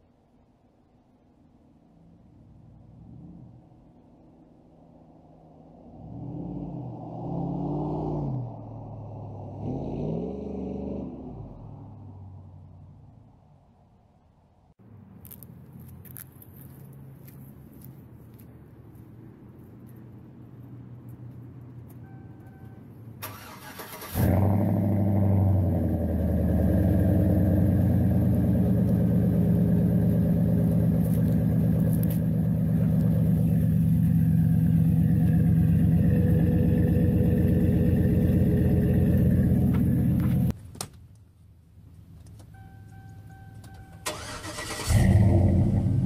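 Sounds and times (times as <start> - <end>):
truck engine starting and idling: 22.0 - 40.6, 42.5 - 46.0.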